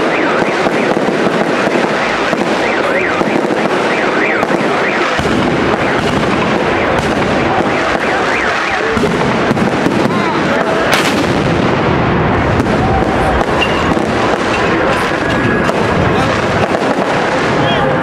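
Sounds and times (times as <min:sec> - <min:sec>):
firework whistles: 0:00.0 - 0:09.2, 0:12.7 - 0:15.2
fireworks crackling and banging: 0:00.0 - 0:18.0.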